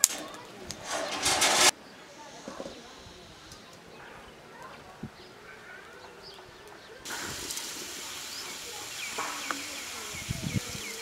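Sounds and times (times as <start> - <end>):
rural background ambience: 0.0 - 11.0
small birds chirping: 1.7 - 11.0
steady hiss: 7.1 - 11.0.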